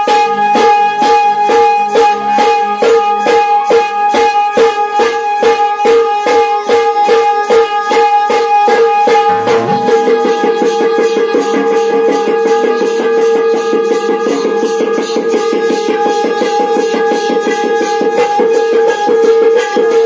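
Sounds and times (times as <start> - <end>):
drum beat: 9.3 - 10.6
held steady instrumental tones: 9.3 - 11.2.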